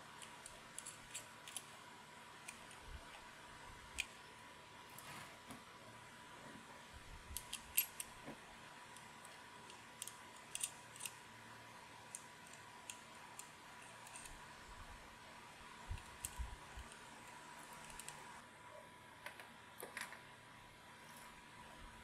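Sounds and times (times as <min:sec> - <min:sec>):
metal strips clicking on plastic holders: 0:00.2 - 0:01.7, 0:08.9 - 0:11.2, 0:12.1 - 0:14.4, 0:15.9 - 0:18.2.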